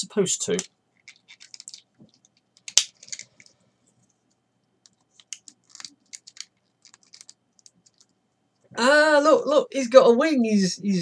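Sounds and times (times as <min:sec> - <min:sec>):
plastic toy parts clicking: 0:00.6 - 0:01.8, 0:02.6 - 0:03.5, 0:04.8 - 0:08.0.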